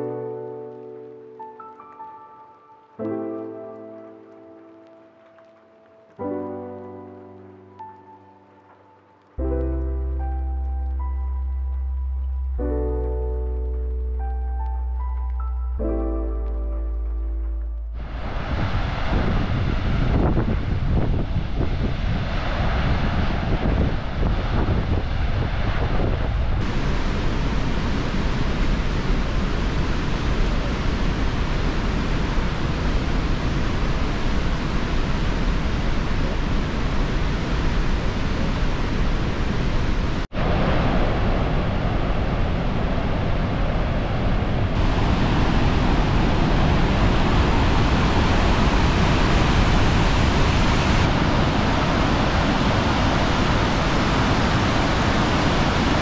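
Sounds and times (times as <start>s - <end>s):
waterfall roaring: 18.0s - 21.4s, 26.6s - 56.0s
wind buffeting microphone: 18.0s - 56.0s.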